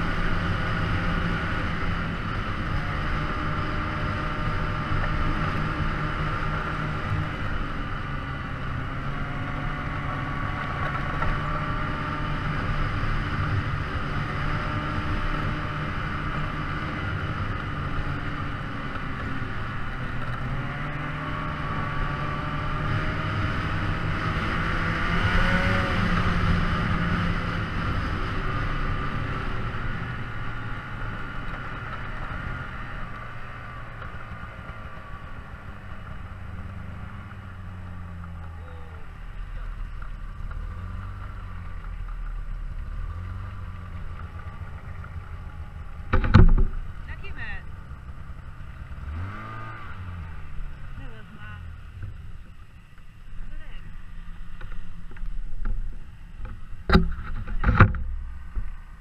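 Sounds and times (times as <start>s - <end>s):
engine running: 0.0s - 59.0s.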